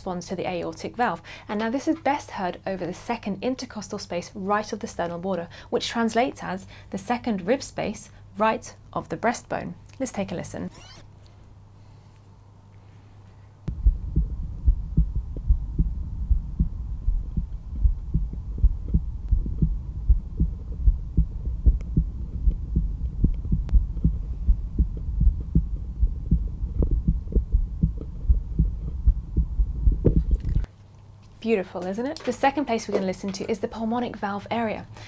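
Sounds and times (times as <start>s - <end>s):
heartbeat through stethoscope: 13.7s - 30.7s
low rumble: 13.7s - 30.7s.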